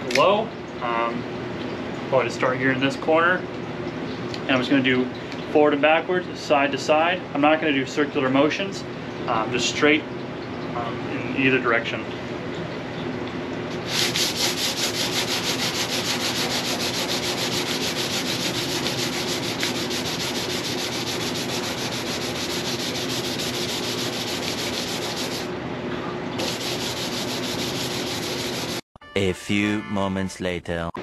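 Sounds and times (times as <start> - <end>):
hand sanding rasping strokes: 13.8 - 25.5, 26.4 - 28.8.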